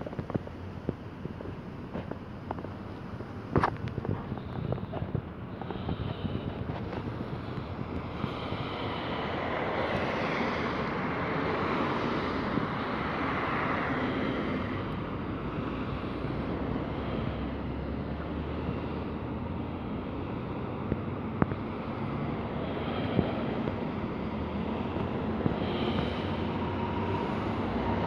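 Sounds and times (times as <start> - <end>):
wind rumbling on microphone: 0.0 - 28.0
car passing by: 8.2 - 28.0.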